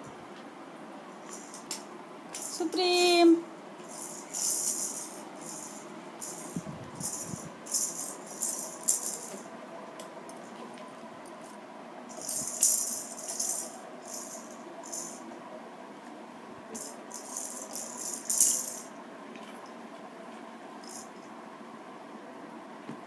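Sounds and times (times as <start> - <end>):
plastic baby rattle shaking: 1.2 - 2.6, 3.9 - 9.4, 12.1 - 15.2, 16.8 - 18.9, 20.8 - 21.1.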